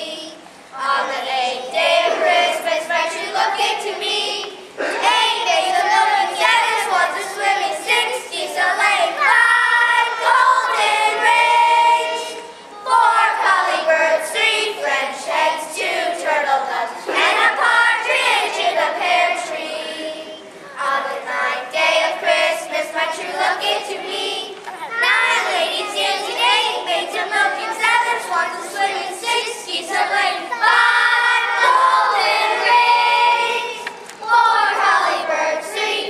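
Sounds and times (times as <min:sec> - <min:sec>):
children singing together: 0:00.0 - 0:36.0.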